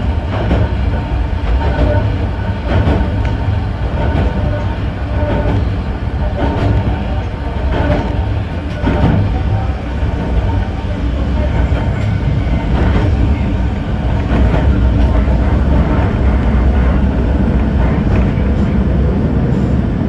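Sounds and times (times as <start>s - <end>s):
train wheels rumbling: 0.0s - 20.0s.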